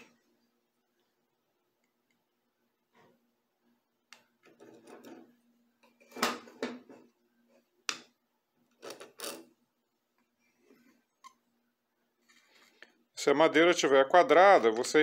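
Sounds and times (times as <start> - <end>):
knocks and scrapes on metal worktop: 4.4 - 5.4.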